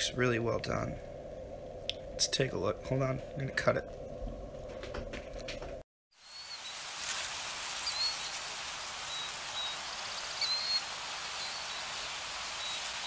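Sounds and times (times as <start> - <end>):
rain-like hiss: 0.0 - 13.0
high bird chirps: 6.2 - 6.8, 7.8 - 13.0.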